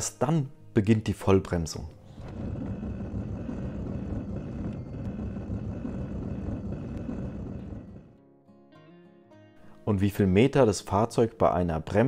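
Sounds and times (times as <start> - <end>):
car engine and road rumble: 1.8 - 8.2.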